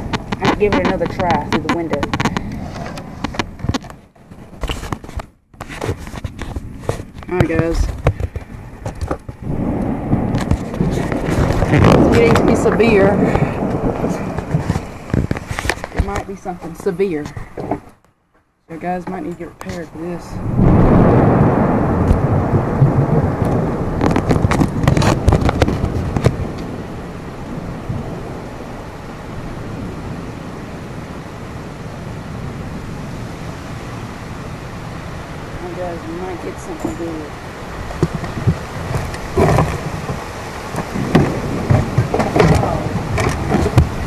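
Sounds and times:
thunder rumbling: 0.0 - 18.0, 18.7 - 44.0
rain: 0.0 - 18.1, 18.7 - 44.0
sharp cracks and knocks: 0.0 - 19.9, 22.0 - 22.3, 23.4 - 26.7, 37.8 - 44.0
wind: 0.0 - 44.0.

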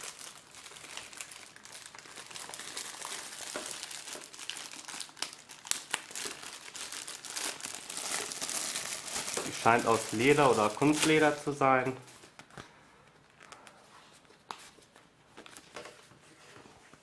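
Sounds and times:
plastic wrapping crinkling: 0.0 - 16.1.

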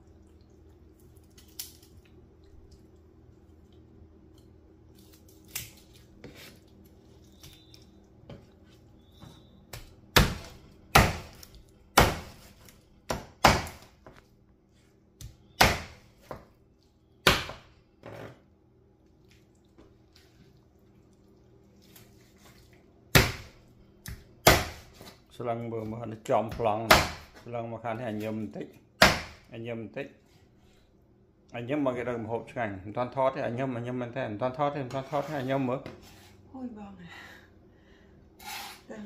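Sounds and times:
knife chopping on wooden board: 9.7 - 14.2, 15.2 - 16.5, 17.2 - 17.7, 23.1 - 25.2, 26.5 - 27.4, 29.0 - 29.5.

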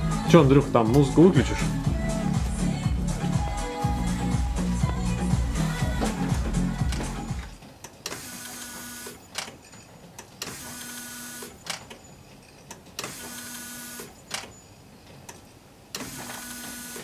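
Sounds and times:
music: 0.0 - 7.6.

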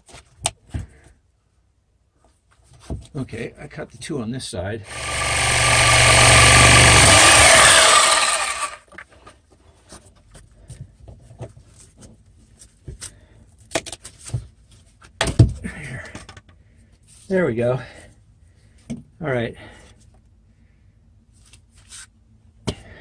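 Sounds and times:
reciprocating saw cutting wood: 4.9 - 8.8.

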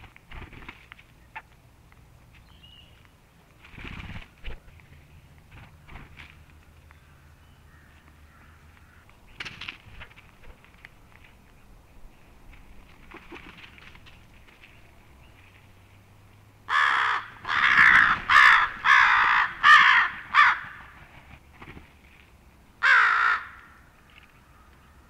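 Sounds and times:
crows cawing: 7.0 - 9.1, 16.7 - 21.0, 22.8 - 25.0.

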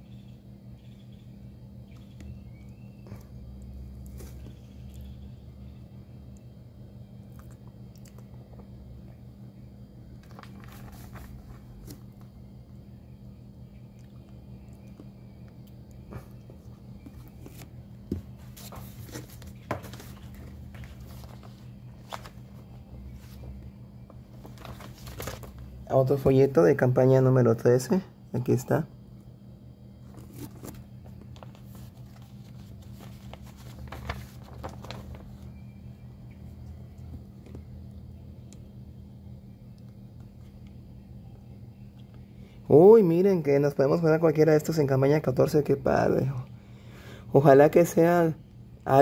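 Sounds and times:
steady low hum: 0.0 - 49.0
paper brochure handling: 4.0 - 4.7, 10.1 - 12.3, 16.2 - 26.2, 30.0 - 35.7.

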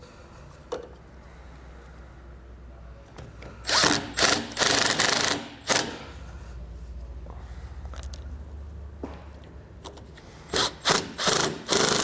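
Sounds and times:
impact driver running: 3.6 - 6.0, 10.5 - 12.0.

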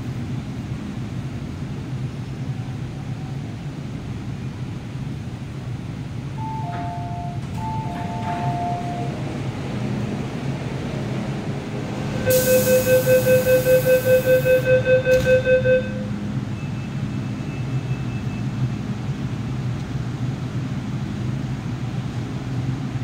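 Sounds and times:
train humming at platform: 0.0 - 23.0
rapid door warning beeps: 6.4 - 9.1, 12.3 - 18.5.

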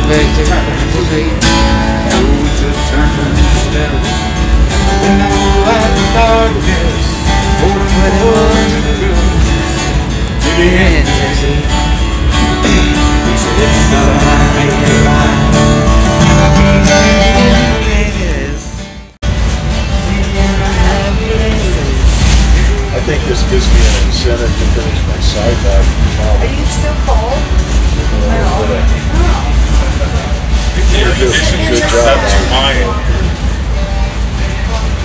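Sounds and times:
man singing: 0.0 - 18.9, 19.9 - 25.7, 30.8 - 33.2
acoustic guitar strumming: 0.0 - 35.0.

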